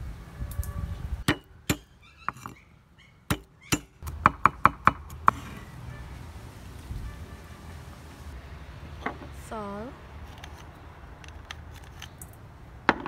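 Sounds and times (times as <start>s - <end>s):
cleaver chopping on wooden board: 3.3s - 5.5s.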